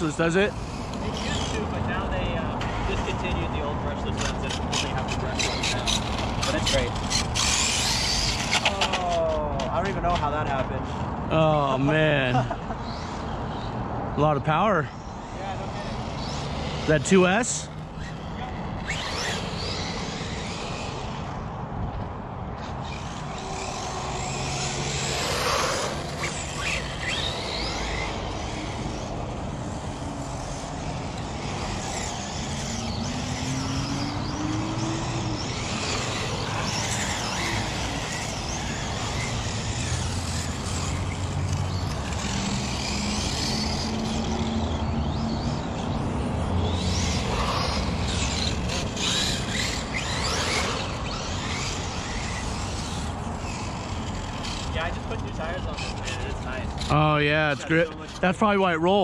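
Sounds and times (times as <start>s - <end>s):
electric toy car motors whining: 0.0s - 13.8s, 14.5s - 21.7s, 22.6s - 58.8s
tyre noise on asphalt: 17.8s - 57.0s.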